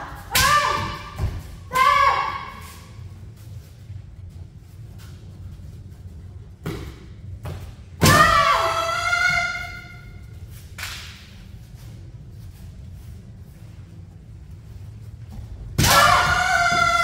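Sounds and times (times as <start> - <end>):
woman's high-pitched shout: 1.7 - 2.6.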